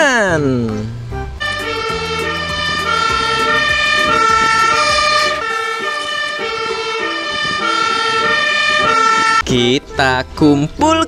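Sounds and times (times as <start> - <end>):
low engine rumble: 0.0 - 10.4
two-tone fire engine siren: 1.4 - 9.4.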